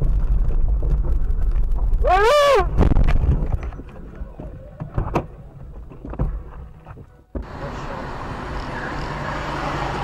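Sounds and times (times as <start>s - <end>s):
low rumble with knocks: 0.0s - 2.1s, 2.7s - 7.5s
car road and engine noise: 0.0s - 10.0s.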